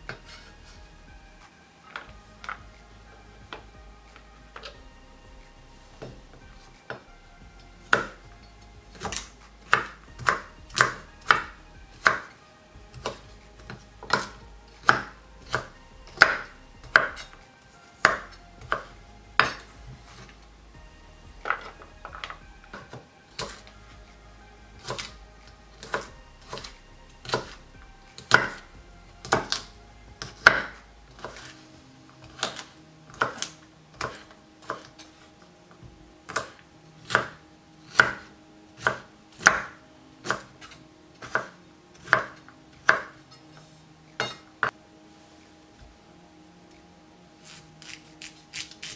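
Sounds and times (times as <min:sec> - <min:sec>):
knife chopping on wooden board: 0:07.9 - 0:08.2, 0:08.9 - 0:12.3, 0:12.9 - 0:17.3, 0:18.0 - 0:20.3, 0:25.8 - 0:27.6, 0:28.2 - 0:28.6, 0:29.2 - 0:29.6, 0:30.2 - 0:31.5, 0:32.2 - 0:35.0, 0:36.3 - 0:43.2.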